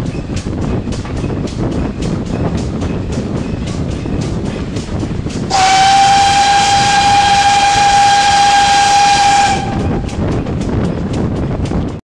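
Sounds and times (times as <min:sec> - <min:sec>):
train carriages running: 0:00.0 - 0:12.0
steam locomotive whistle blast: 0:05.5 - 0:10.2.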